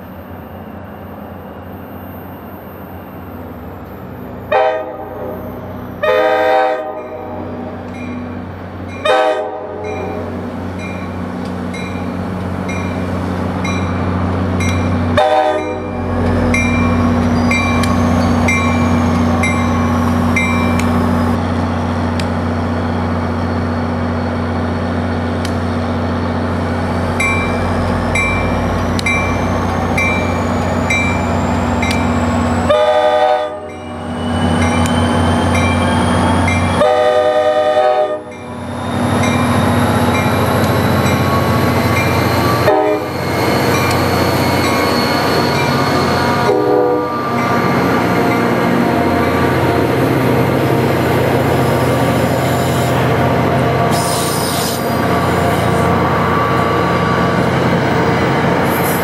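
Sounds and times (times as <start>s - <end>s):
diesel locomotive engine droning: 0.0s - 59.0s
train horn blasts: 4.5s - 5.4s, 6.0s - 7.7s, 9.0s - 10.4s, 15.2s - 16.0s, 32.7s - 33.8s, 36.8s - 38.4s, 42.5s - 43.2s, 46.3s - 47.4s
crossing bell dinging: 7.9s - 21.0s, 27.2s - 32.3s, 38.2s - 48.6s.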